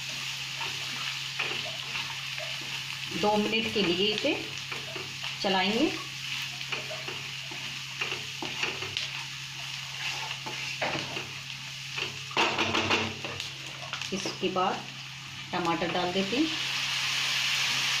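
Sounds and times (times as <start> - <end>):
masala sizzling in a frying pan: 0.0 - 18.0
wooden spatula scraping a pan: 6.8 - 11.3.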